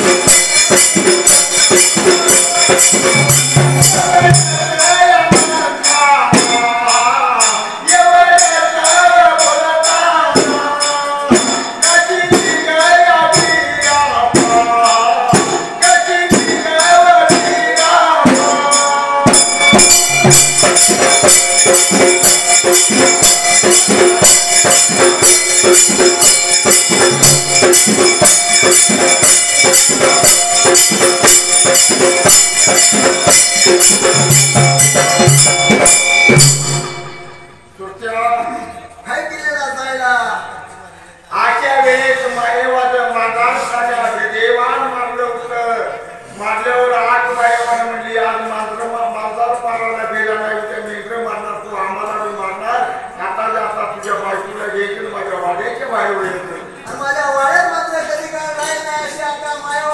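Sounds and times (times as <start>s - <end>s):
dhol drum beat: 0.0s - 7.6s, 10.3s - 37.7s
hand cymbals jingling: 0.0s - 37.8s
men chanting a melody: 1.2s - 36.5s.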